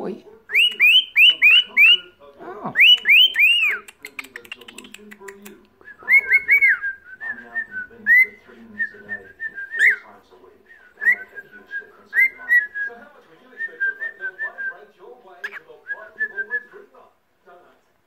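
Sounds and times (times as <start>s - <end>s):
cockatiel warbling whistles: 0.5s - 2.0s, 2.8s - 3.9s, 6.0s - 7.4s, 9.6s - 10.0s
loud sharp bird chirps: 0.5s - 2.1s, 2.8s - 3.9s.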